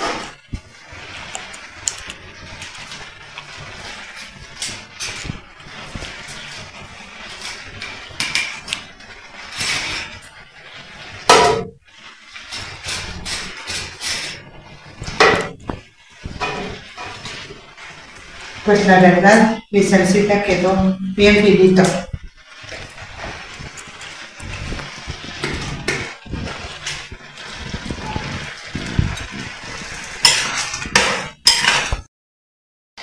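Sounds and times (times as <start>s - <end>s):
spoon scraping metal strainer: 0.0s - 32.0s.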